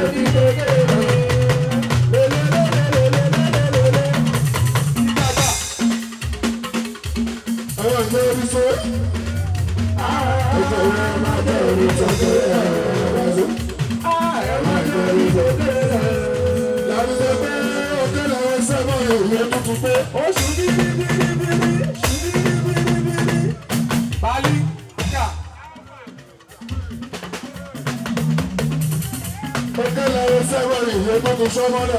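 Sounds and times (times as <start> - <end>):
person singing: 0.0 - 5.6, 7.8 - 23.8
drums and percussion beat: 0.0 - 31.9.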